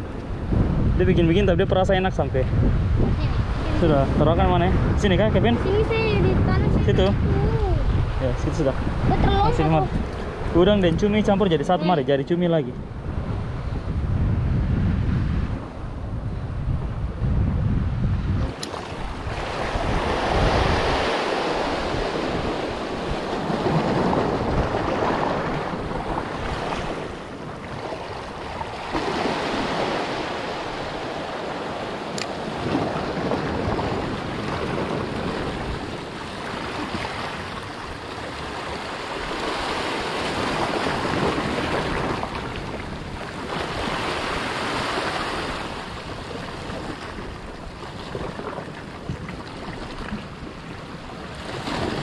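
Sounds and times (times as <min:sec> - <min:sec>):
sea waves washing over rocks: 0:18.4 - 0:52.0.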